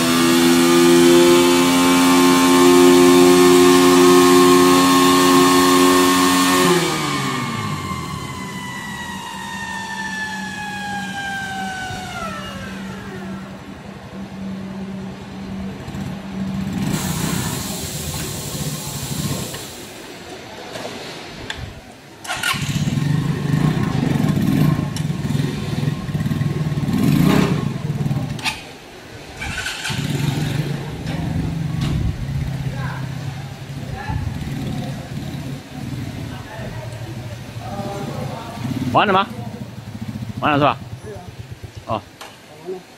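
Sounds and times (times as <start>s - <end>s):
motorcycle engine: 0.0s - 20.1s, 22.2s - 42.4s
whine of spinning rollers: 5.7s - 20.6s.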